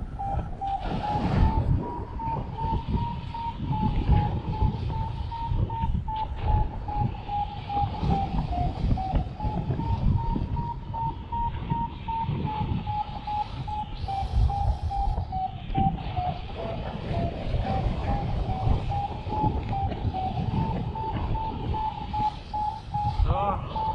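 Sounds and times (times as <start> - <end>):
wind buffeting microphone: 0.0 - 23.9
variometer short beeps: 4.5 - 16.0, 18.9 - 23.9.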